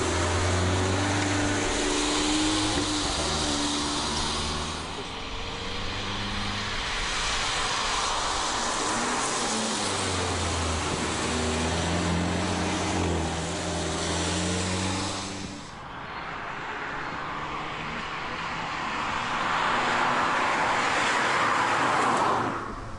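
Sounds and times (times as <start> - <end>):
car engine running at speed: 0.0 - 15.8
tyre hiss on wet road: 0.0 - 15.9, 17.6 - 22.9.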